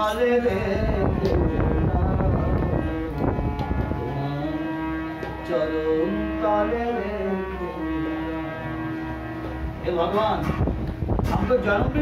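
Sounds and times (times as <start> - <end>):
harmonium chords and melody: 0.0 - 12.0.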